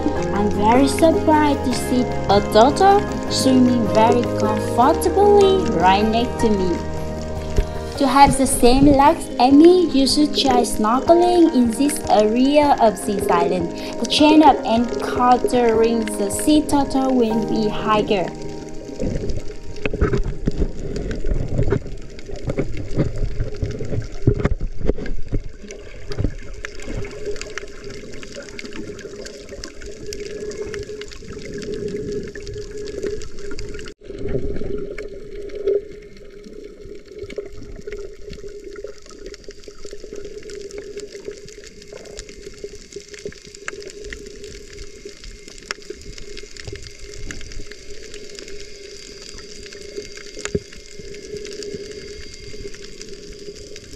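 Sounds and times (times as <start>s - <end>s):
water swishing and gurgling: 0.0s - 53.9s
small clicks and crackles: 18.1s - 53.9s.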